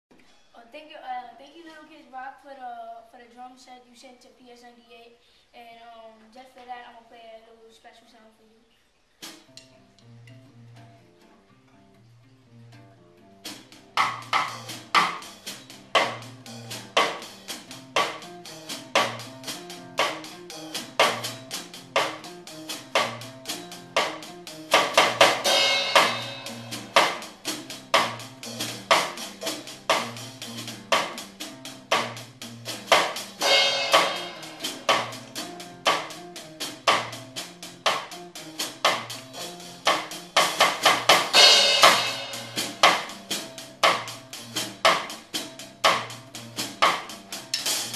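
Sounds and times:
drum kit beat: 9.2s - 9.8s, 13.4s - 47.9s
acoustic guitar: 9.2s - 47.9s.

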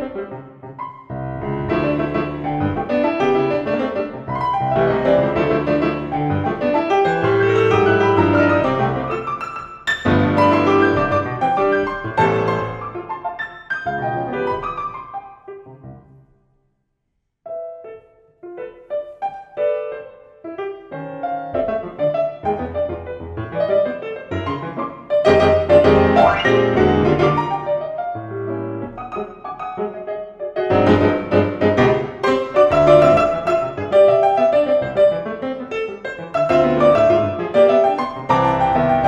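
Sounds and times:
grand piano played four hands: 0.0s - 16.5s, 17.5s - 39.0s.

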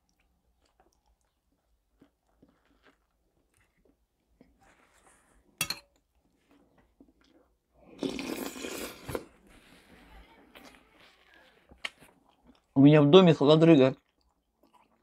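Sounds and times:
loud slurp of soup: 7.8s - 9.4s.

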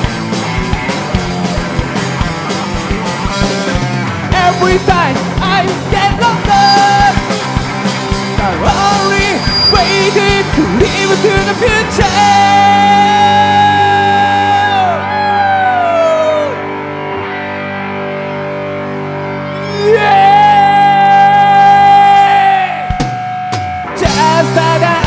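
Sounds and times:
live rock band playing: 0.0s - 25.0s
man singing: 4.3s - 7.5s, 8.3s - 16.6s, 19.6s - 23.0s, 23.9s - 25.0s.

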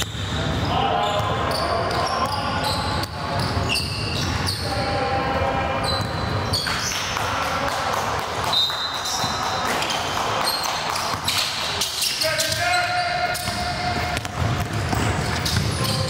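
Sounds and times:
echoing voices: 0.0s - 16.0s
high-pitched shoe squeaks: 1.5s - 4.7s, 5.8s - 6.9s, 8.5s - 13.9s, 15.2s - 16.0s
basketball bouncing: 13.4s - 16.0s.

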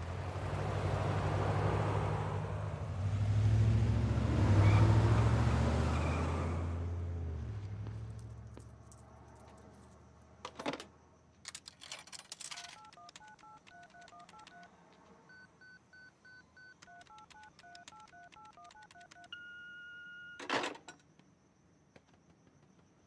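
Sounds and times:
keypad clicking: 12.5s - 14.8s, 16.7s - 19.4s.

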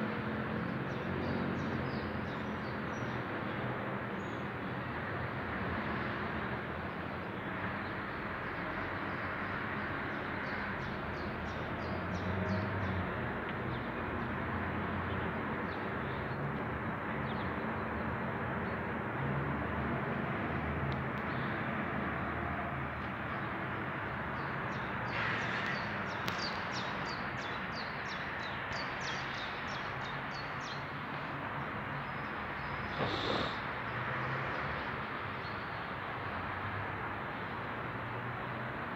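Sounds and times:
small birds chirping: 32.1s - 33.9s.

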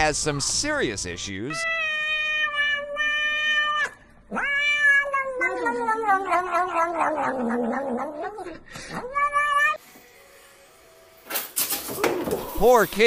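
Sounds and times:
cat meow: 1.5s - 9.8s
cat yowling: 1.5s - 9.8s.

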